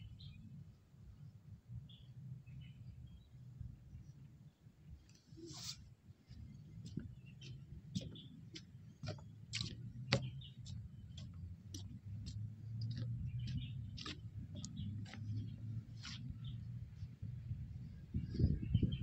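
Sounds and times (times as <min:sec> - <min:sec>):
steady low rumble: 0:05.8 - 0:19.0
footsteps clicking and scuffing: 0:06.3 - 0:16.7.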